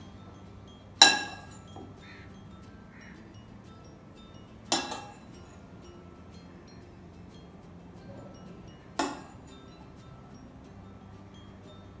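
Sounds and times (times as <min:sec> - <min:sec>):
metal spoon clinking glass bowl: 0:00.0 - 0:06.1, 0:08.2 - 0:10.2
faint background music: 0:00.0 - 0:12.0.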